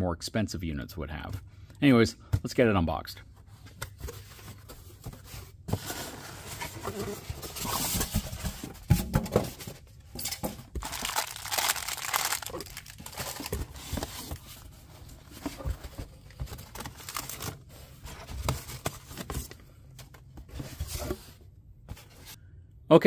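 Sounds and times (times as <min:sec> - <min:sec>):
packing rustling and scraping: 0:03.4 - 0:19.6.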